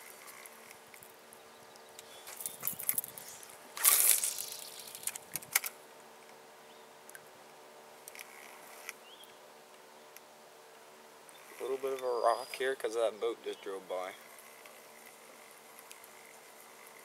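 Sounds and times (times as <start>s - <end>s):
short rustling burst: 2.2s - 5.7s
fishing reel clicking: 2.3s - 5.2s, 14.2s - 17.0s.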